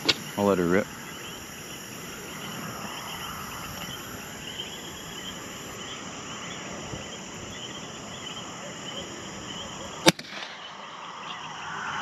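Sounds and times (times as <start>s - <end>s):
constant hiss: 0.0s - 12.0s
crickets chirping: 0.0s - 12.0s.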